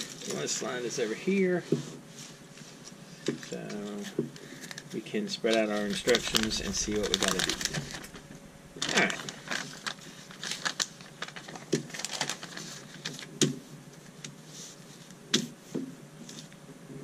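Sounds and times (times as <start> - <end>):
paper rustling and crinkling: 5.5 - 13.4.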